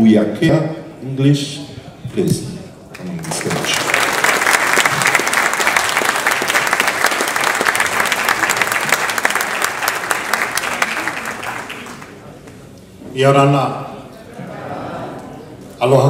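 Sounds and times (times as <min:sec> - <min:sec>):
audience applauding: 0:02.9 - 0:12.4.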